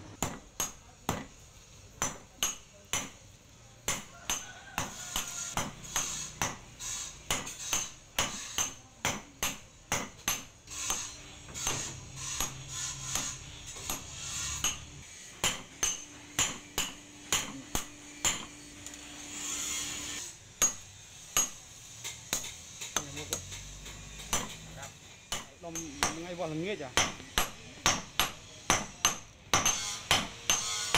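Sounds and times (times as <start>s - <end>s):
hammer clanging on anvil: 3.9s - 18.6s, 21.4s - 30.9s.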